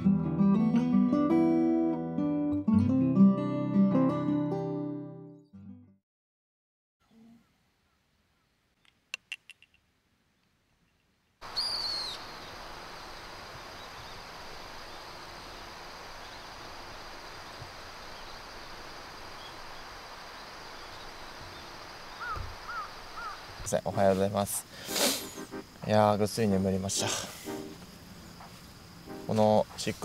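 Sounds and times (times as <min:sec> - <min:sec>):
countryside hiss: 0:11.4 - 0:30.0
bird's falling whistle: 0:11.5 - 0:12.3
sharp chirps: 0:24.8 - 0:25.8.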